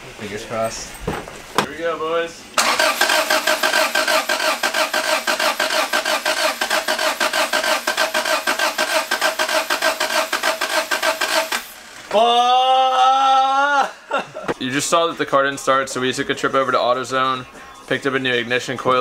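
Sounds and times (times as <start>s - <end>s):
car engine cranking on starter: 2.6s - 12.1s.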